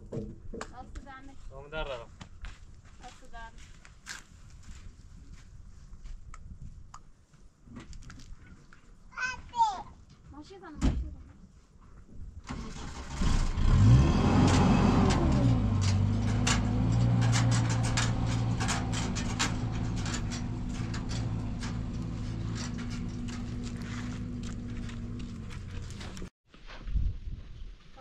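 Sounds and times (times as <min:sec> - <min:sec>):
engine revving and idling: 0:12.6 - 0:26.3
rattling clicks: 0:14.4 - 0:26.3.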